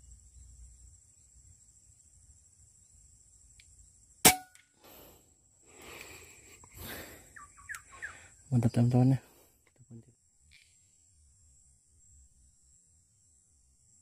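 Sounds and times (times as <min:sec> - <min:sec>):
air rifle shot: 0:04.2 - 0:04.6.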